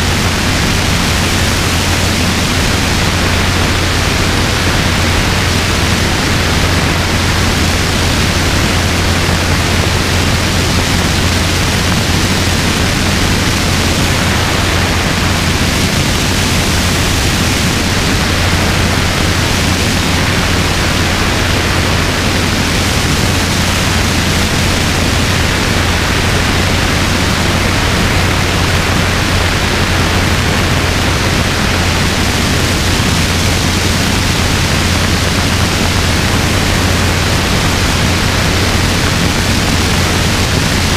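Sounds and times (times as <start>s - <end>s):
helicopter engine and rotor hum: 0.0s - 40.9s
wind rushing over microphone: 0.0s - 40.9s.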